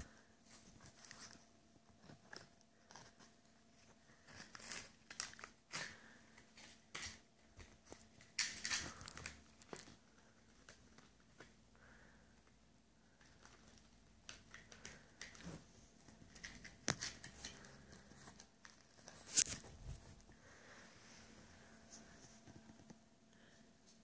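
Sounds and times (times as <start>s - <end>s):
crunching and rustling: 0.0s - 12.0s.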